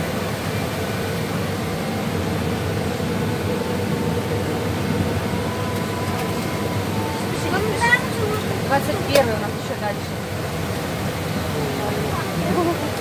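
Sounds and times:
air-conditioning ventilation hum: 0:00.0 - 0:13.0.

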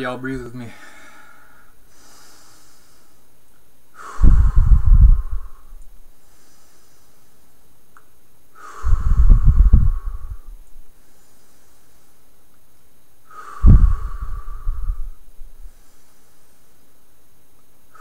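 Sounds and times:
man breathing deeply: 0:00.6 - 0:07.7, 0:08.5 - 0:12.5, 0:13.2 - 0:17.2
breath blowing on microphone: 0:04.0 - 0:07.4, 0:08.6 - 0:12.2, 0:13.3 - 0:16.8.

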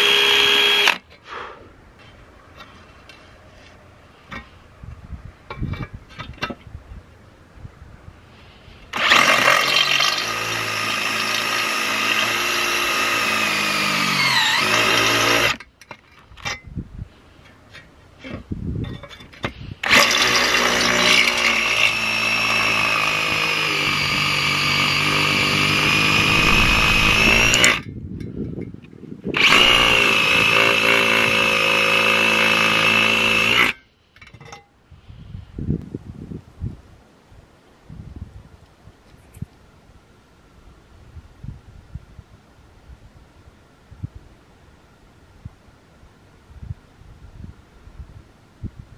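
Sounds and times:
cordless drill cutting metal: 0:00.0 - 0:01.0, 0:08.9 - 0:15.6, 0:19.8 - 0:27.8, 0:29.4 - 0:33.8.

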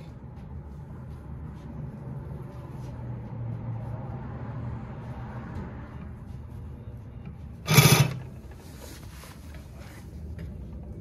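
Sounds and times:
loud rattling noise: 0:07.6 - 0:08.3
sewing machine running: 0:07.6 - 0:08.3.

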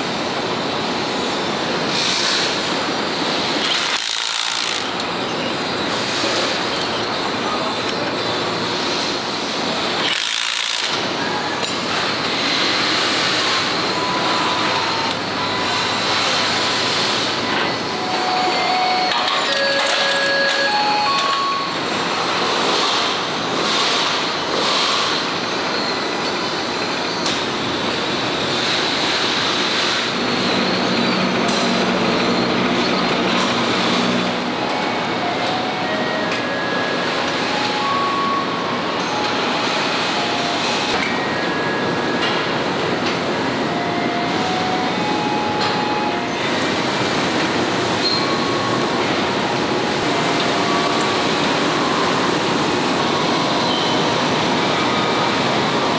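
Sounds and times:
conveyor rolling rumble: 0:04.8 - 0:10.0, 0:11.0 - 0:55.9
short squeaks and beeps: 0:13.1 - 0:21.8, 0:30.4 - 0:42.3, 0:48.0 - 0:49.5, 0:50.1 - 0:55.9.

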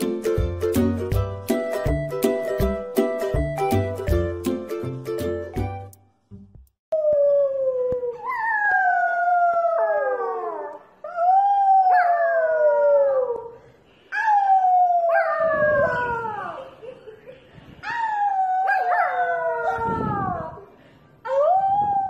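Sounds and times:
puppy howling: 0:07.0 - 0:13.5, 0:14.2 - 0:16.6, 0:17.9 - 0:20.6.

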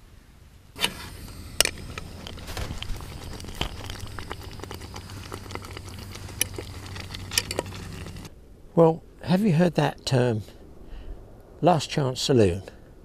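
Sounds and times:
low steady hum: 0:00.0 - 0:13.0
sauce bubbling and popping: 0:01.3 - 0:08.3.

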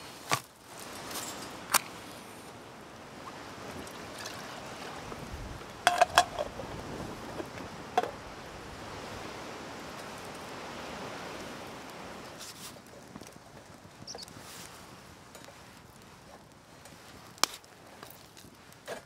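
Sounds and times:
wind rushing: 0:04.8 - 0:11.9.

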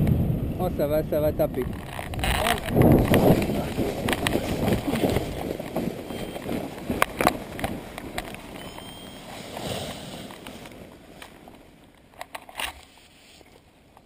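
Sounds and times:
sharp cracks: 0:01.4 - 0:06.1
rustling through dry grass: 0:01.7 - 0:14.0.

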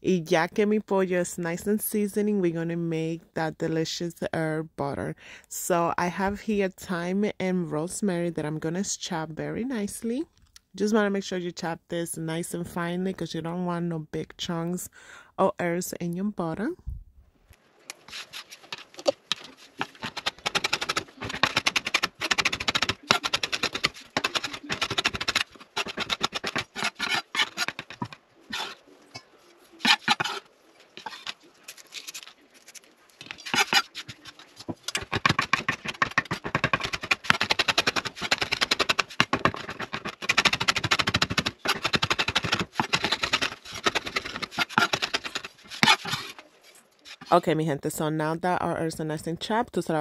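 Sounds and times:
knife chopping on wooden board: 0:19.0 - 0:28.8.

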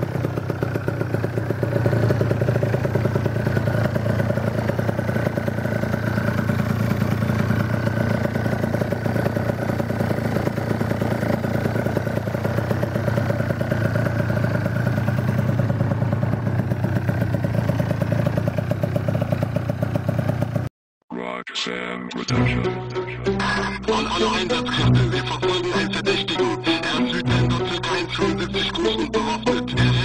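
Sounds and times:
scooter engine running: 0:00.0 - 0:20.7.

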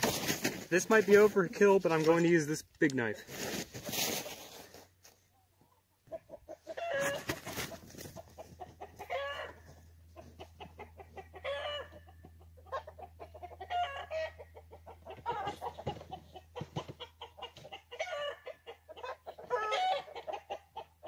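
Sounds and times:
chickens clucking: 0:05.2 - 0:21.0
chickens squawking: 0:05.4 - 0:21.0.

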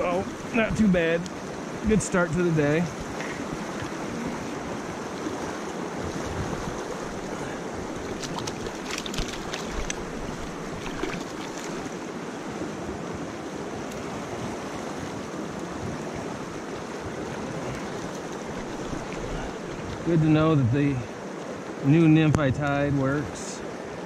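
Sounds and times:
stream running over rocks: 0:00.0 - 0:24.0
short water splashes: 0:05.3 - 0:12.1, 0:17.1 - 0:20.1.

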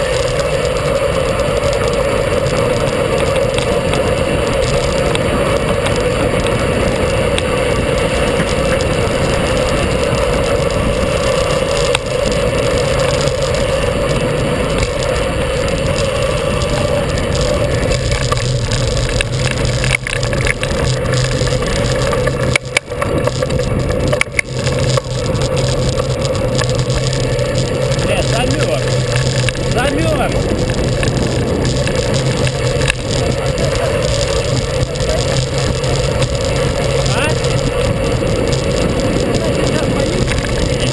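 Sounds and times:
low hum: 0:00.0 - 0:40.9
wind and road noise: 0:00.0 - 0:40.9.

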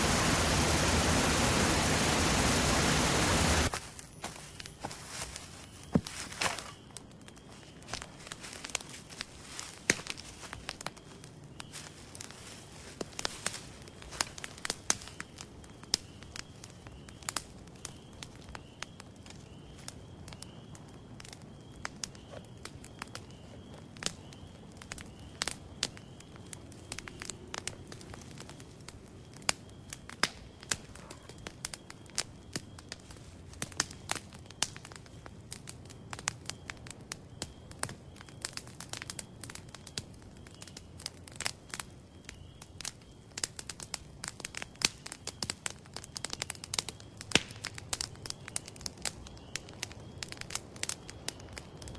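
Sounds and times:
steady rush of flames: 0:00.0 - 0:03.7
campfire crackling and popping: 0:00.0 - 0:51.9.

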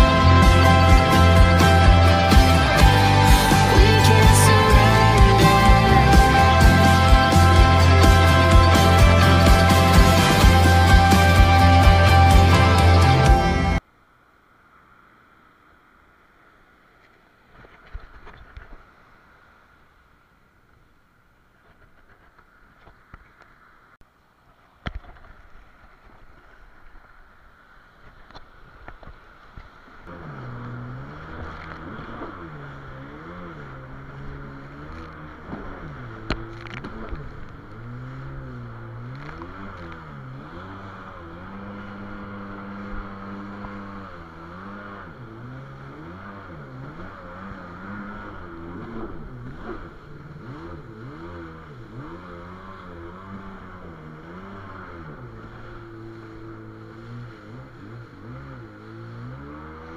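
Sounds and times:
jet ski engine: 0:00.0 - 0:13.8, 0:14.7 - 0:23.6, 0:24.5 - 0:59.9.

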